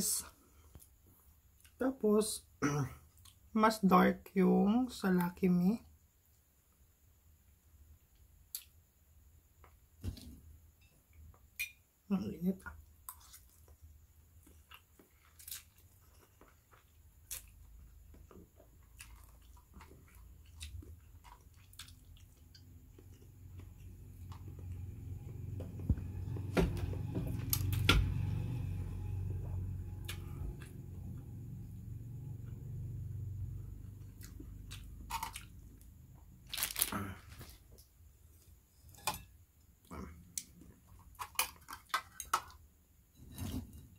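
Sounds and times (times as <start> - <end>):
chewing with clicks and smacks: 14.4 - 25.4.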